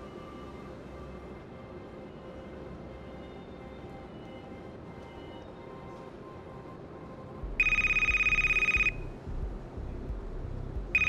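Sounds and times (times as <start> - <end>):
telephone ringing: 7.6 - 9.0.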